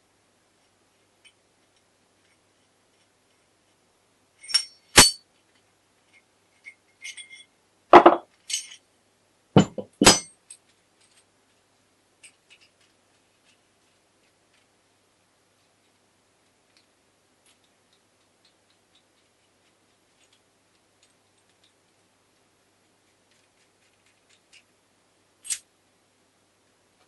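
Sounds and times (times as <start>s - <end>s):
metal parts clinking: 4.4s - 5.2s, 6.1s - 8.8s, 9.6s - 11.3s, 25.4s - 25.6s.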